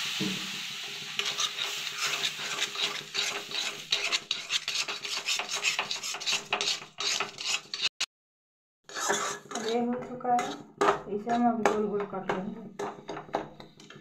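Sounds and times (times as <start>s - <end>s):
water sizzling in hot pan: 0.0s - 7.0s
spatula scraping metal pan: 0.9s - 8.0s, 8.9s - 11.8s.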